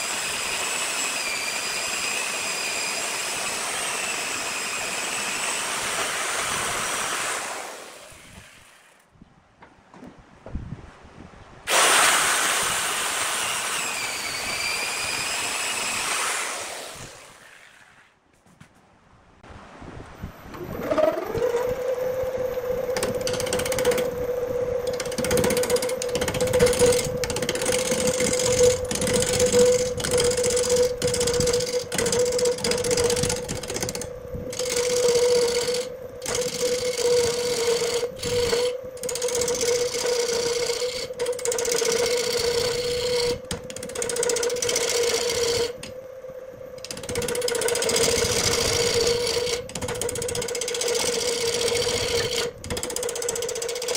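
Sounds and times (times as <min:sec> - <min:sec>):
wood lathe humming: 0:00.0 - 0:09.0, 0:11.7 - 0:17.5, 0:20.6 - 0:53.9
gouge scraping wood: 0:24.9 - 0:34.0.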